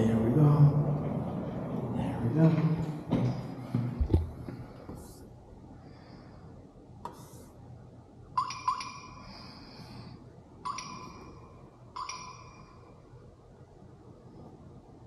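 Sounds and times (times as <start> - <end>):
bright ringing dings: 8.4 - 9.4, 10.6 - 12.9.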